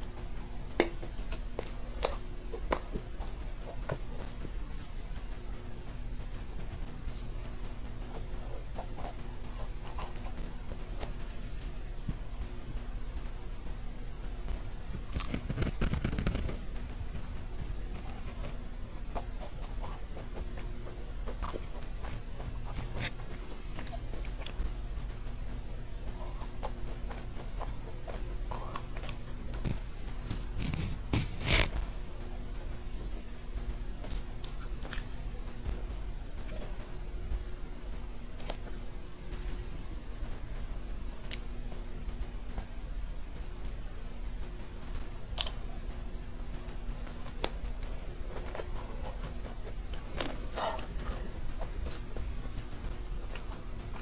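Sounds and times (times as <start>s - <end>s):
crisp shell crackling while eating: 0.0s - 54.0s
low hum: 0.0s - 54.0s
person chewing: 0.6s - 5.0s, 6.7s - 11.6s, 15.0s - 32.0s, 34.0s - 37.0s, 45.2s - 45.8s, 47.2s - 54.0s
crunchy bite: 34.1s - 35.1s.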